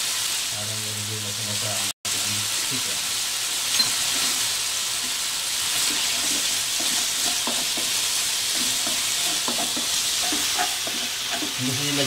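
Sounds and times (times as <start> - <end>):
chicken sizzling in hot oil: 0.0 - 12.0
wooden spatula scraping a pan: 5.0 - 12.0.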